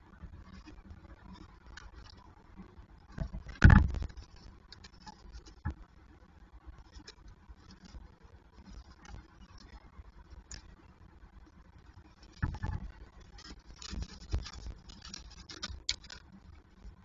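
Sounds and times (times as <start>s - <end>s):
scratches and taps on gravel: 13.4s - 16.3s.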